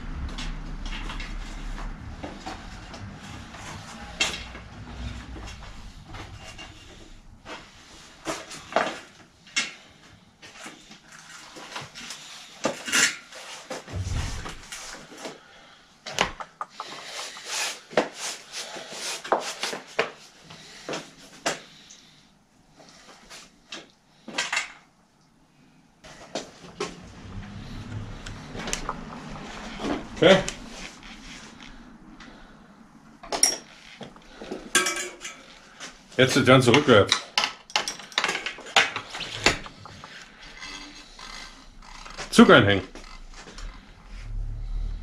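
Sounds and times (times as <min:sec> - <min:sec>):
dull thump: 0:13.9 - 0:14.9.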